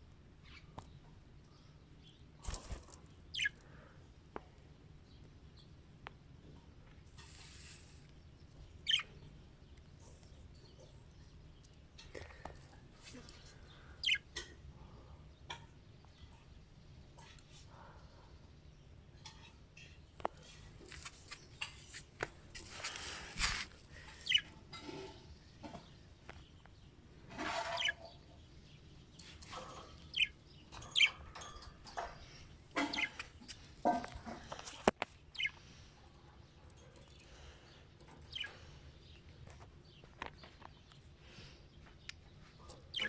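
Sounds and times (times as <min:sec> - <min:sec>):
budgerigars chirping and chattering: 0:03.3 - 0:03.6, 0:08.8 - 0:09.2, 0:14.0 - 0:14.3, 0:24.1 - 0:24.5, 0:27.4 - 0:28.2, 0:29.2 - 0:34.0, 0:34.7 - 0:35.6, 0:38.1 - 0:39.2, 0:42.7 - 0:43.0.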